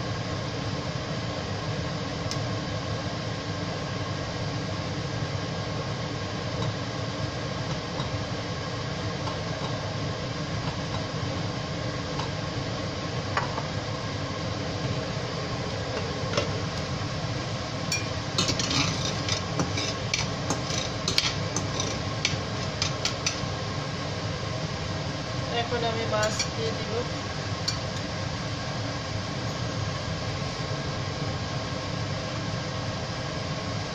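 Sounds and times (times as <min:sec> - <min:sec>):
spatula scraping inside pan: 0:18.0 - 0:23.4.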